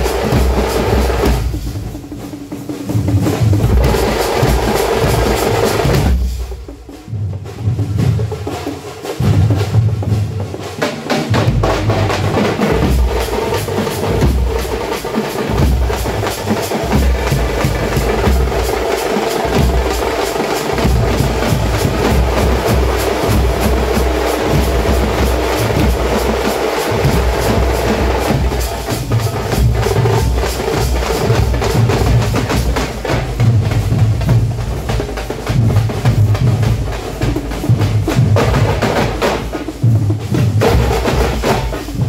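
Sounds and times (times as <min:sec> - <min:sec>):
frame drums beaten fast: 0:00.0 - 0:42.0.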